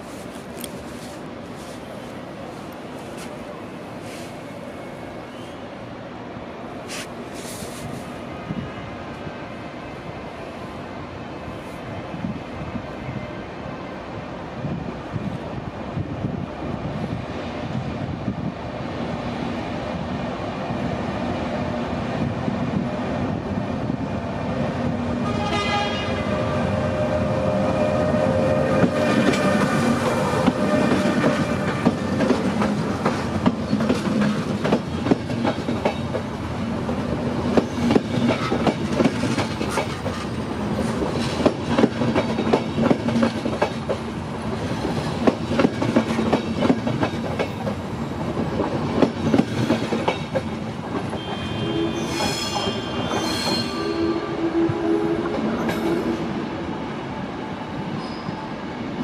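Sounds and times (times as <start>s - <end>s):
train horn: 25.2s - 29.8s, 51.2s - 56.3s
train wheels clattering over rails: 28.7s - 51.5s.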